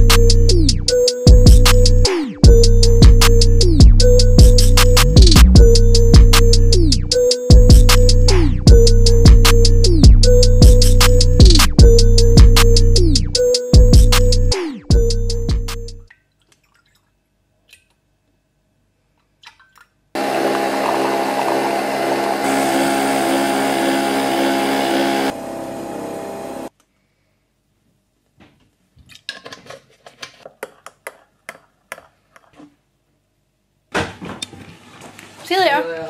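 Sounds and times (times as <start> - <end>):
coffee machine pump buzzing: 20.2 - 26.7.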